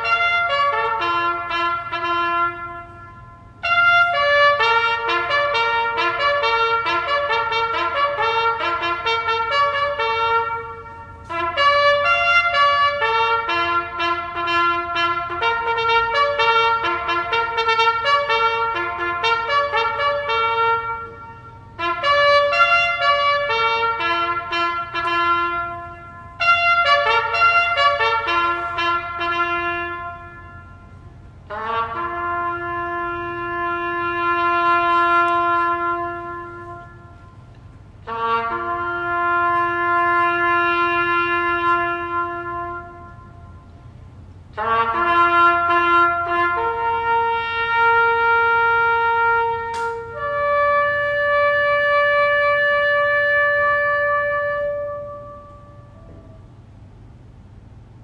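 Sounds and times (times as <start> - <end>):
solo trumpet bugle call: 0.0 - 57.2.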